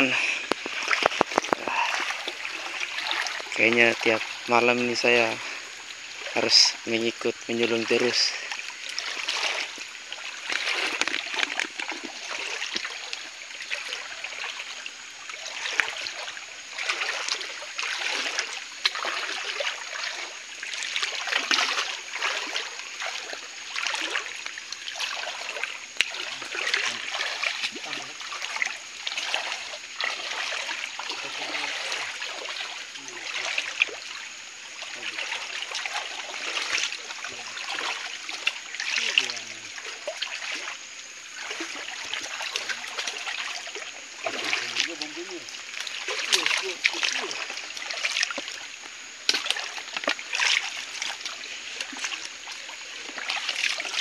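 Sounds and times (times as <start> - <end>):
stream trickling: 0.0 - 54.0
water splashing from wading: 0.0 - 54.0.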